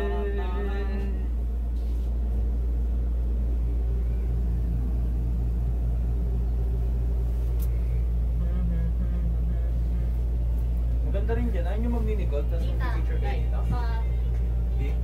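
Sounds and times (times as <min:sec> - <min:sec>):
low rumble and hum: 0:00.0 - 0:15.0.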